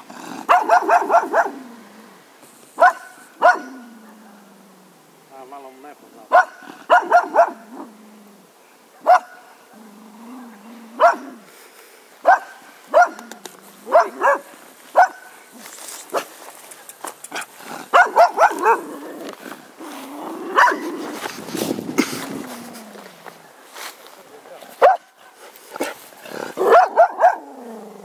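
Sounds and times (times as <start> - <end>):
dog grumbling: 0.0 - 0.7, 9.8 - 11.4, 25.8 - 28.0
dog barking: 0.5 - 1.6, 2.8 - 4.5, 6.3 - 7.9, 8.9 - 9.6, 11.0 - 11.4, 12.2 - 13.3, 13.9 - 15.4, 17.9 - 18.9, 20.5 - 20.9, 24.8 - 25.2, 26.6 - 27.5.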